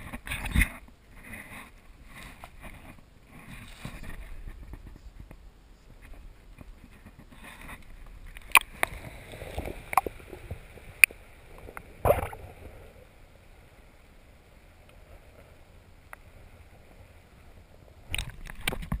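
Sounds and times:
muffled underwater hush: 0:00.2 - 0:13.4
water splashing and gurgling: 0:07.1 - 0:19.0.

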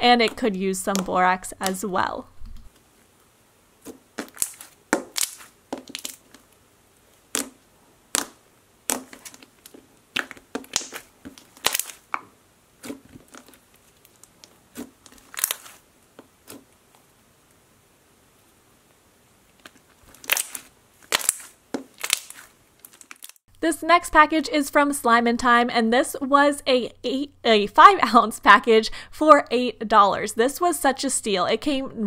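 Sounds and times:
slime squished by hand: 0:03.8 - 0:06.5, 0:07.2 - 0:15.8, 0:19.6 - 0:23.4.

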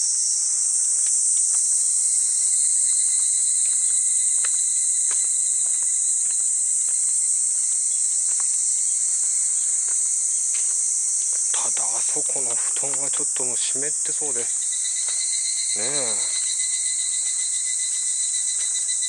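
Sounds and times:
footsteps on stone steps: 0:00.0 - 0:13.4
high-pitched insect chorus: 0:00.0 - 0:19.0.

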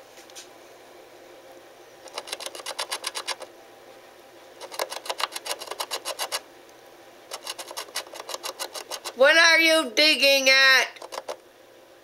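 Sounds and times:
animal scratching inside wall: 0:02.0 - 0:03.5, 0:04.6 - 0:06.4, 0:07.3 - 0:09.3, 0:10.9 - 0:11.4.

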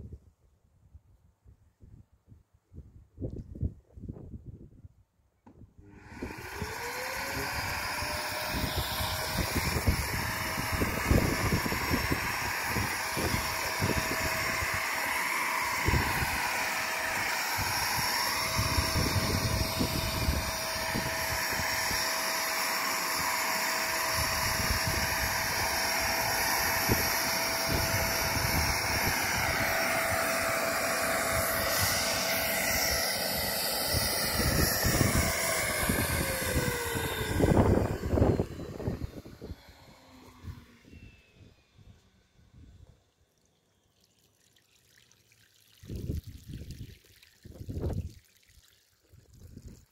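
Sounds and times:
vacuum motor whining: 0:05.8 - 0:42.8
water gurgling through hose: 0:44.0 - 0:49.9.

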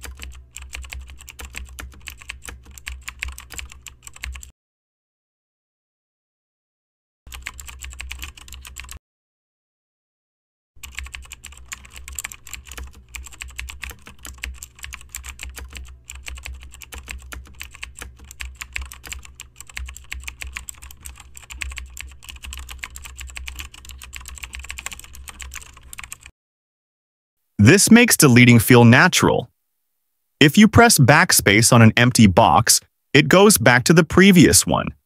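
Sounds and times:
fast keyboard typing: 0:00.0 - 0:04.5, 0:07.3 - 0:09.0, 0:10.8 - 0:26.3.

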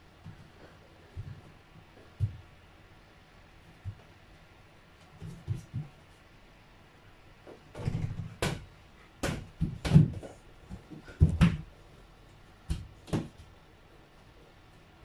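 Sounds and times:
ball bouncing on floor: 0:01.2 - 0:02.4, 0:07.7 - 0:11.7, 0:12.6 - 0:13.5.

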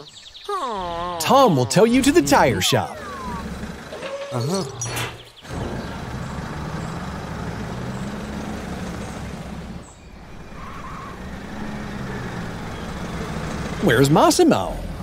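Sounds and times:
cartoon truck engines humming: 0:00.0 - 0:15.0.

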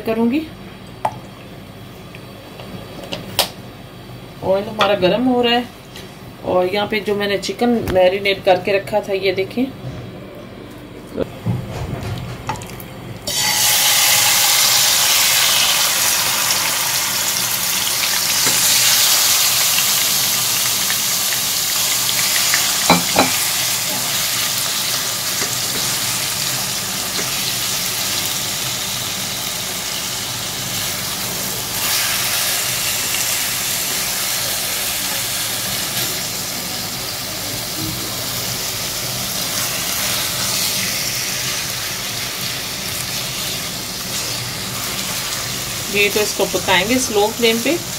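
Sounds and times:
chicken sizzling in hot oil: 0:13.3 - 0:47.9.

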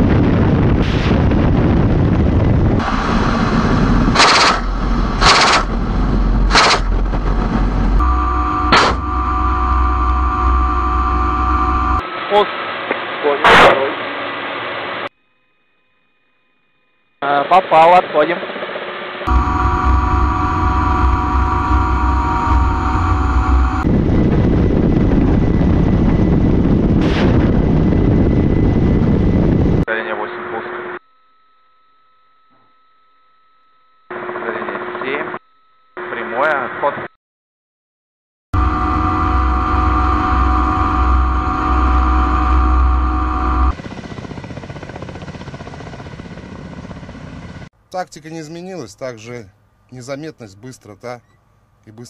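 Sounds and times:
heavy low rumble: 0:00.0 - 0:12.0, 0:19.3 - 0:29.9, 0:38.6 - 0:47.7
helicopter rotor throb: 0:00.0 - 0:12.0, 0:17.2 - 0:30.7, 0:38.6 - 0:47.7
rotor and wind rush: 0:00.0 - 0:12.0, 0:18.5 - 0:29.9, 0:38.6 - 0:47.7
helicopter turbine whine: 0:00.0 - 0:12.4, 0:16.7 - 0:31.0, 0:38.6 - 0:47.7.

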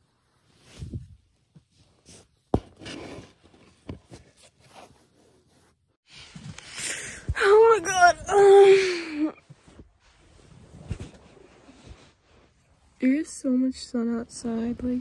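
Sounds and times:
fleece blanket rustling: 0:09.4 - 0:13.1.

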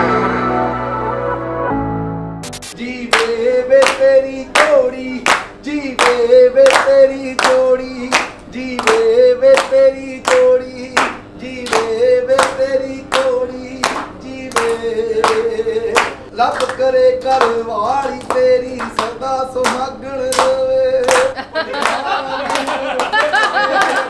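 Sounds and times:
person singing through loudspeakers: 0:02.8 - 0:21.4
people clapping in time: 0:03.1 - 0:24.0.

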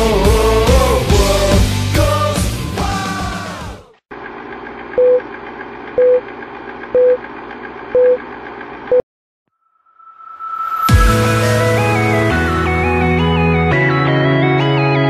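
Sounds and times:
rock music: 0:00.0 - 0:03.9, 0:10.9 - 0:15.0.

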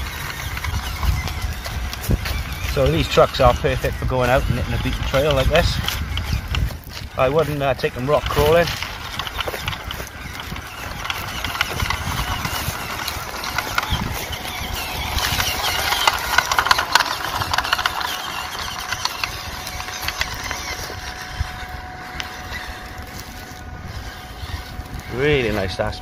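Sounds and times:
electric motor and gearbox whining: 0:00.0 - 0:26.0
leaves and twigs crackling: 0:00.0 - 0:26.0.

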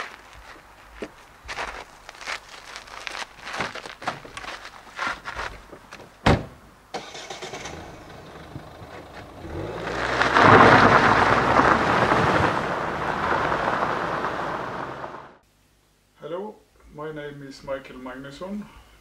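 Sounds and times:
tyres crunching on gravel: 0:00.0 - 0:06.2, 0:07.0 - 0:15.3
car door slamming: 0:06.2 - 0:06.6
car engine starting: 0:06.9 - 0:15.4.

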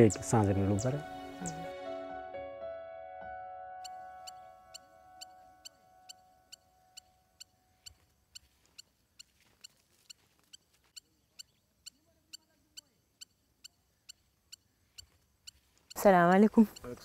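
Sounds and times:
background music: 0:00.0 - 0:07.4.

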